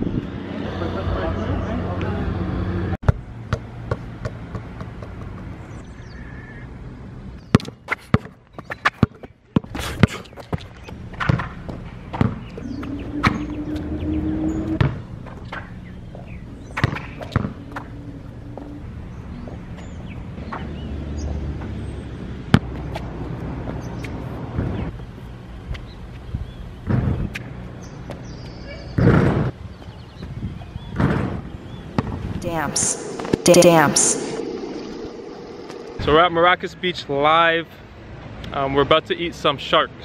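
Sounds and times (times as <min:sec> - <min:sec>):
basketball bouncing on asphalt: 0:03.0 - 0:05.5, 0:07.5 - 0:12.5, 0:22.5 - 0:23.0.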